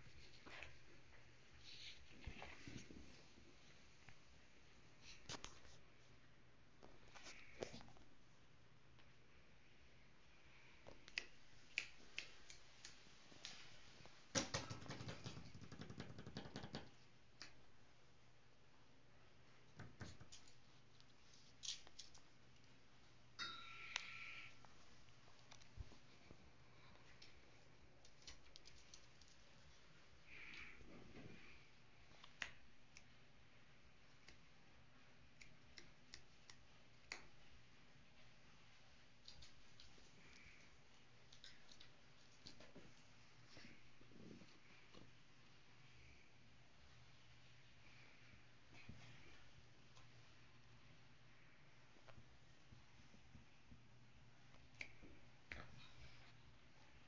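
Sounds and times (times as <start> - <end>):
dog claws tapping on tabletop: 14.4 - 17.0.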